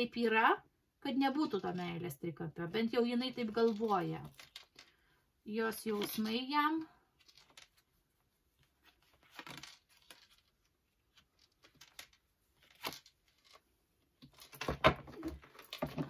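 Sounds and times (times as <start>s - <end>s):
cards rustling and sliding: 8.6s - 14.8s.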